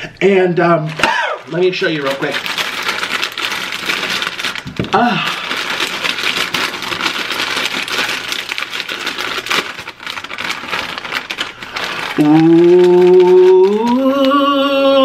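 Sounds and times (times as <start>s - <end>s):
foil chip bag crinkling: 0.7s - 15.0s
man singing long note: 12.2s - 15.0s.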